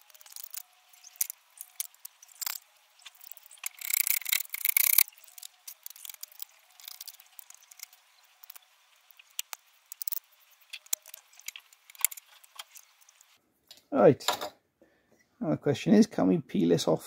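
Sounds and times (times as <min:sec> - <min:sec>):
tape crinkling and clicks: 0:00.0 - 0:13.4.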